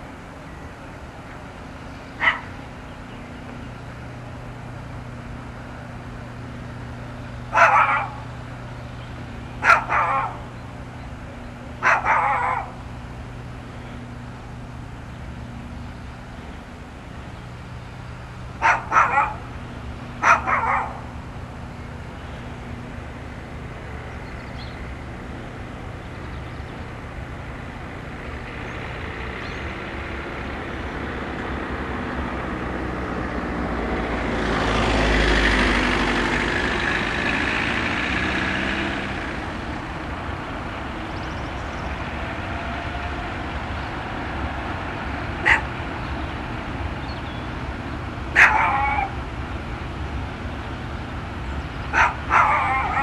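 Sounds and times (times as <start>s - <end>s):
freight train passing: 0.0s - 53.0s
low engine hum: 0.0s - 53.0s
dog barking: 2.2s - 2.5s, 7.5s - 8.2s, 9.6s - 10.4s, 11.8s - 12.8s, 18.6s - 19.5s, 20.2s - 21.1s, 45.4s - 45.7s, 48.3s - 49.2s, 51.9s - 53.0s.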